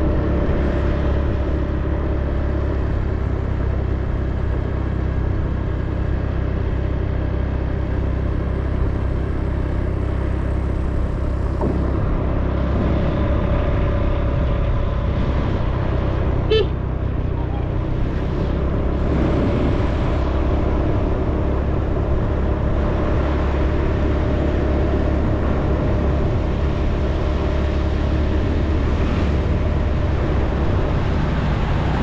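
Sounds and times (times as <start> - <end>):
vehicle engine rumble: 0.0 - 32.0
wind on microphone: 17.6 - 24.1.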